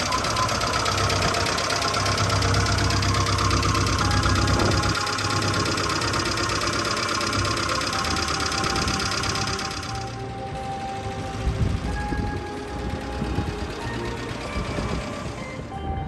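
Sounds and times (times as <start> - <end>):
car engine idling: 0.0 - 15.6.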